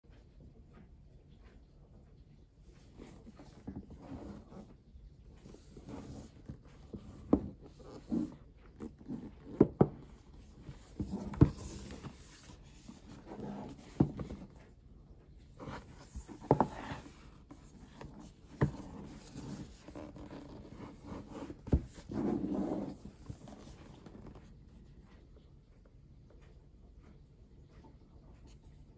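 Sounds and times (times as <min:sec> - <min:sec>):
fingers rubbing on cardboard: 0:15.6 - 0:24.4.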